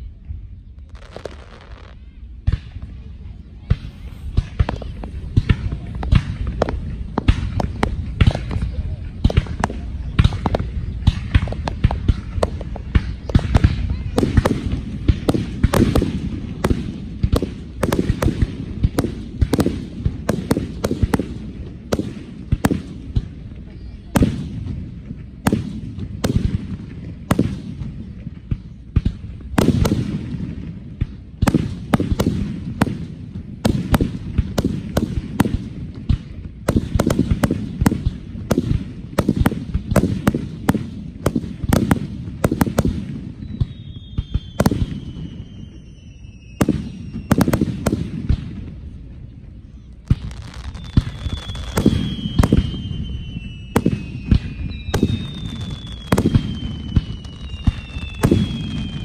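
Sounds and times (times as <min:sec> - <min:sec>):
falling firework whistle: 0:43.3 - 0:47.8, 0:50.2 - 0:59.0.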